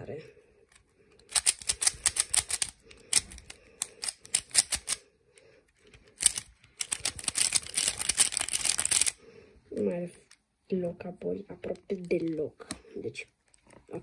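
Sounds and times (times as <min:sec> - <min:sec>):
speed cube plastic clicking: 0:00.7 - 0:05.0, 0:05.7 - 0:09.2, 0:11.7 - 0:12.8.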